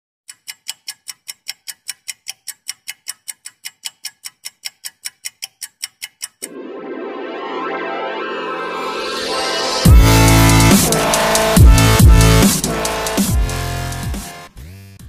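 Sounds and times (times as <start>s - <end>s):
clock ticking: 0.3s - 6.6s
electronic music: 6.4s - 14.5s.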